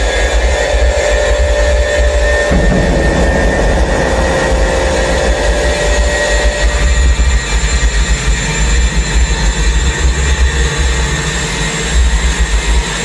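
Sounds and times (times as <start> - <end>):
electronic drone with low rumble: 2.5 - 8.3.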